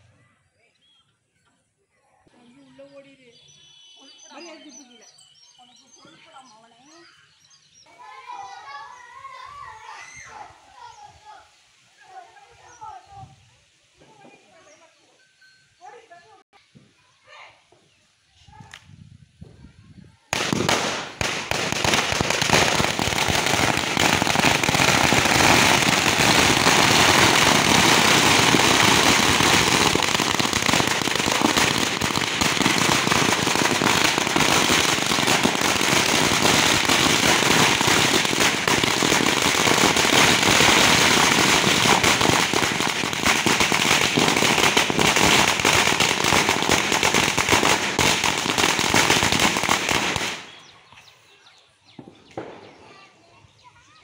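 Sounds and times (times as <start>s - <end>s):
firecrackers rattling bangs: 20.3s - 50.6s.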